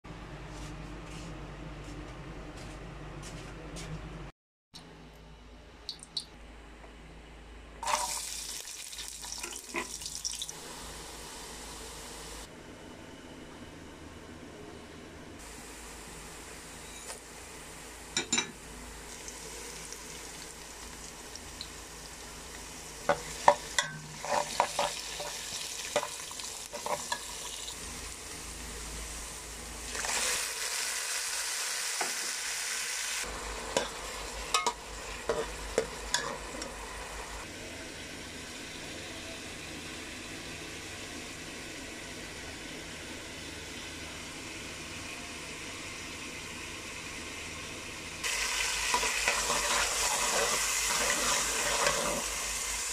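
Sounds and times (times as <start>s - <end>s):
onions sizzling in oil: 7.8s - 12.4s, 19.0s - 38.9s, 48.2s - 52.9s.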